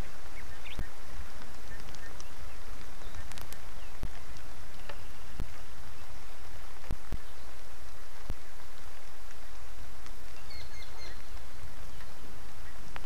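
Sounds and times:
bird chirping: 0.0 - 8.9, 10.2 - 12.9
steady rain falling: 0.0 - 13.0
drops ticking near microphone: 0.7 - 6.0.

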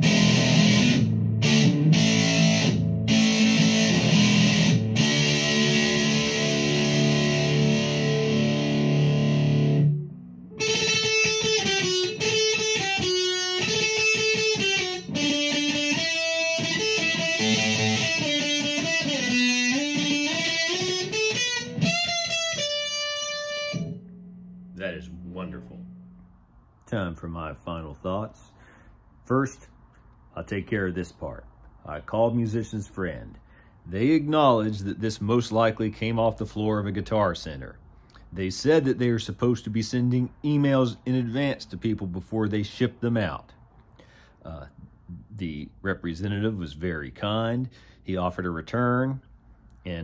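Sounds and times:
electric guitar lead with bends: 0.0 - 26.2
fuzzed electric guitar chords: 0.0 - 26.4.

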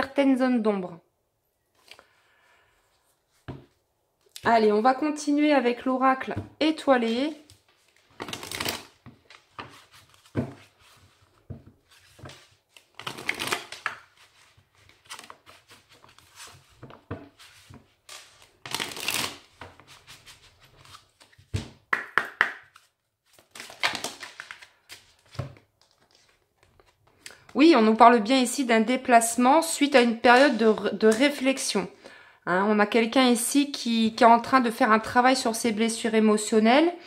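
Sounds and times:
cards shuffling: 7.4 - 21.7, 22.6 - 27.5.

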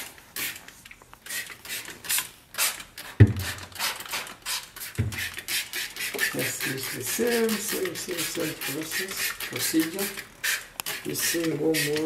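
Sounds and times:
spray bottle squirting: 0.0 - 12.0.

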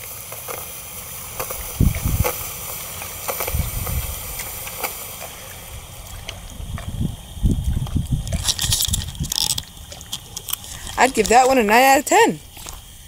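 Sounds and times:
faint steady hiss: 0.0 - 13.0
wind buffeting microphone: 1.5 - 2.6, 3.3 - 4.8, 5.4 - 13.0.

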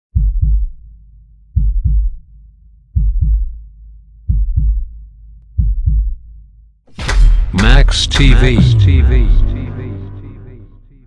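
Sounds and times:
heartbeat thumps: 0.1 - 0.9, 1.6 - 2.2, 2.9 - 6.4, 7.6 - 9.5.

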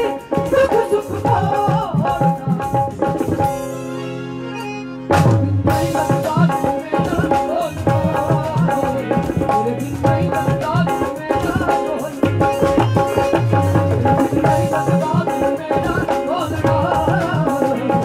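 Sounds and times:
woman singing: 0.0 - 3.5, 5.6 - 18.0
harmonium: 0.0 - 18.0.

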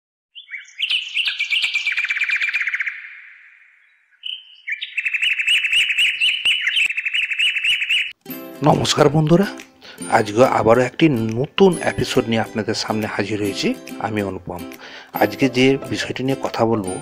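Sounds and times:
songbird high trills: 0.4 - 8.2.

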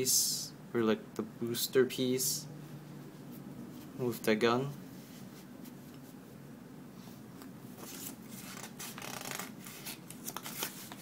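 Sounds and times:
paper rustling: 7.8 - 11.0.

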